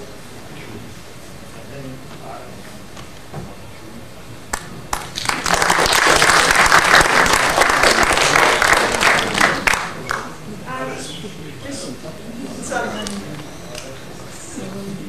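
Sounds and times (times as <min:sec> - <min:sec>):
audience applauding: 0:04.5 - 0:10.4.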